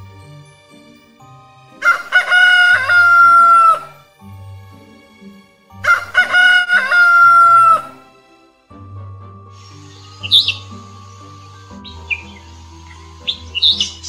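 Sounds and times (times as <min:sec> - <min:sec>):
rooster crowing: 0:01.8 - 0:03.9, 0:05.9 - 0:08.0.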